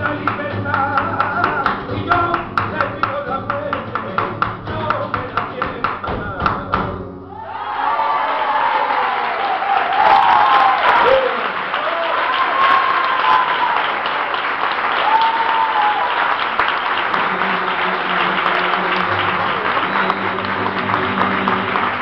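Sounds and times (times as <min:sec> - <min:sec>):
audience applauding: 0:07.4 - 0:22.0.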